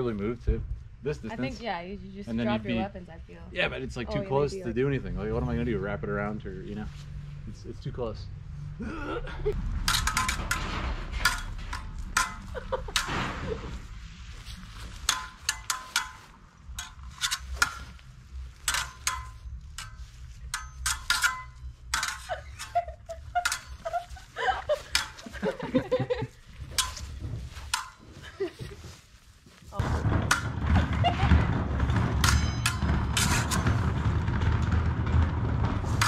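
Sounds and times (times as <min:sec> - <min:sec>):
fencing blades clashing: 0:20.6 - 0:22.8, 0:23.4 - 0:24.2.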